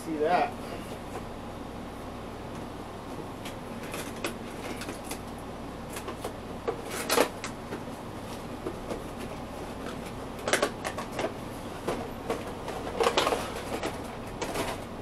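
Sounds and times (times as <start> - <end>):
packaging rustling and tapping: 5.9 - 14.9
crinkling scrape: 12.4 - 14.8.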